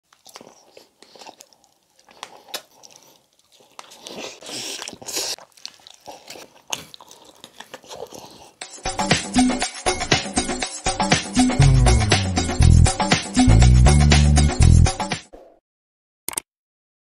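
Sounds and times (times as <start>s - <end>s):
chewing with sticky smacks: 0.1s - 9.0s.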